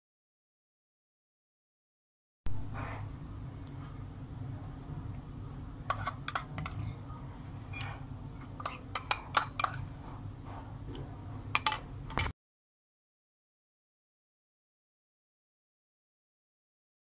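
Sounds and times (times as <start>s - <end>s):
low hum: 2.5s - 12.3s
spoon clicking on plastic bowl: 11.6s - 12.3s.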